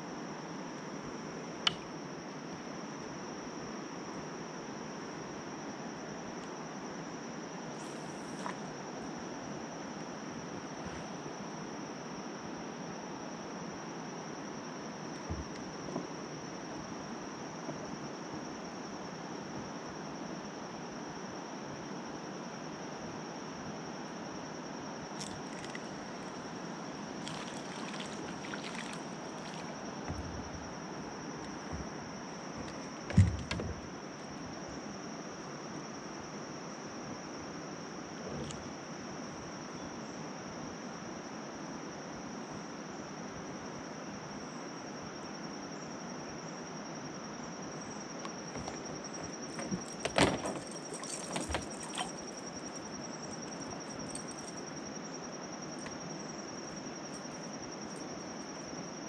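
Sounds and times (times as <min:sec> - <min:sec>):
steady hiss: 0:07.6 - 0:11.6.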